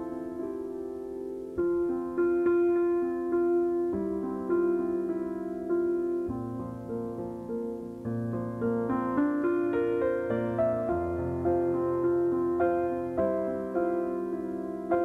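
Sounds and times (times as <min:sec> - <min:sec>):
slow piano music: 0:00.0 - 0:15.0.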